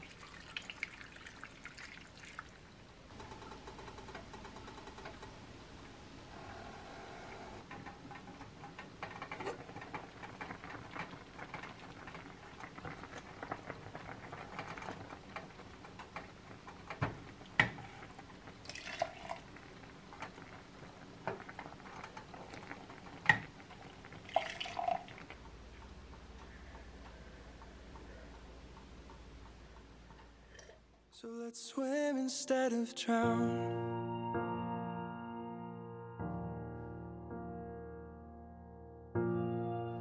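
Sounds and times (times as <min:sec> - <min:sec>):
liquid pouring into metal pot: 0:18.6 - 0:19.6, 0:24.2 - 0:25.3.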